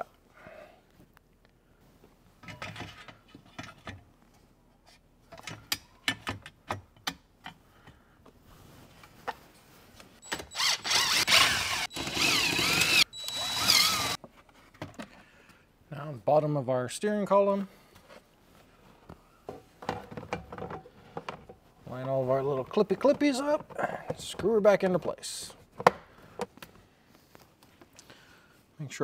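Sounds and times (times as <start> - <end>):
zip ties ratcheting tight: 10.6 - 14.2.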